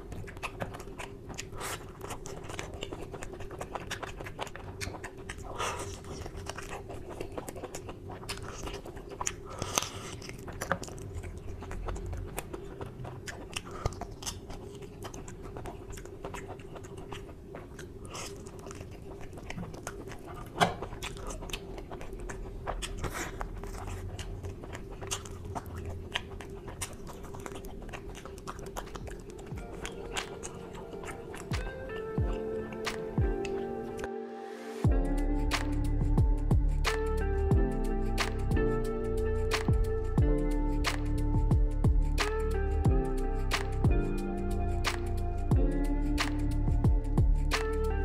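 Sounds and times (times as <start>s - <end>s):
wet chewing and mouth smacks: 0.0s - 34.1s, 34.9s - 48.0s
steady hum: 14.4s - 48.0s.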